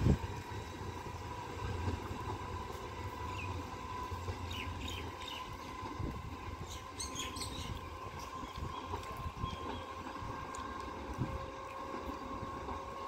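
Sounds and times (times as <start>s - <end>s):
electric train rumbling: 0.0s - 13.0s
birds chirping: 4.3s - 5.8s, 6.6s - 10.1s.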